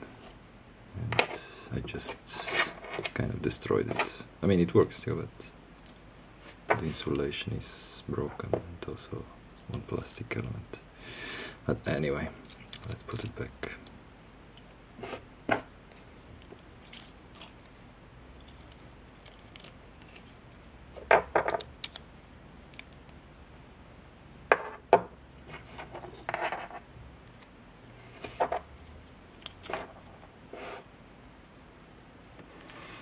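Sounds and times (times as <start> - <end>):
small parts clicking: 12.4 - 13.4
parts rattling: 12.4 - 13.5, 15.6 - 17.8.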